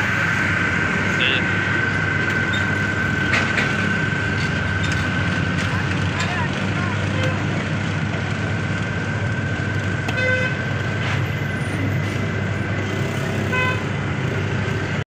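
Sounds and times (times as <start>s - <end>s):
thin steady whine: 0.0s - 15.0s
vehicle horn toots: 7.0s - 7.5s, 10.1s - 10.7s, 13.4s - 13.9s.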